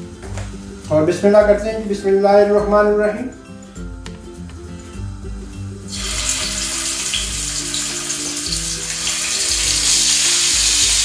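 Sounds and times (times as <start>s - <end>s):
skewers sizzling in hot oil: 5.8s - 11.0s.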